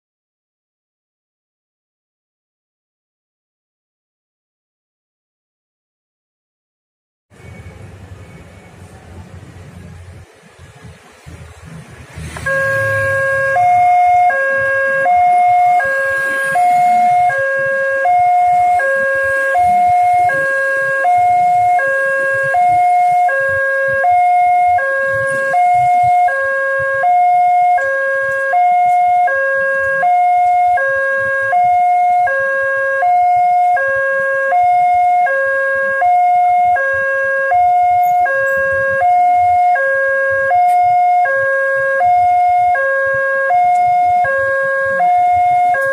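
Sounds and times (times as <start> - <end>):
two-tone crossing alarm: 12.2 - 45.9.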